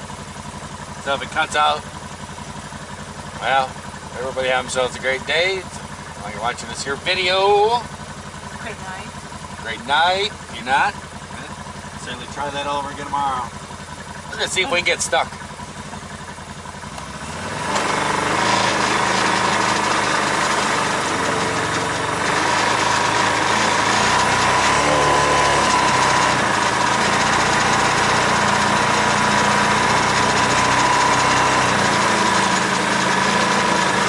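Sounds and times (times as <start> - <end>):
vehicle engine under load: 0.0 - 34.0
tyres over rough wet ground: 10.4 - 34.0.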